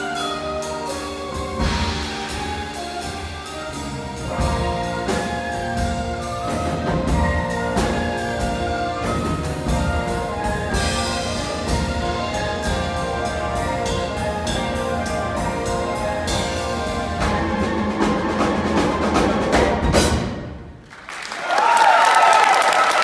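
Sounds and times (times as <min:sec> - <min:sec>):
orchestra playing dance music: 0:00.0 - 0:20.8
timpani: 0:00.0 - 0:20.9
audience applause and cheering: 0:20.7 - 0:23.0.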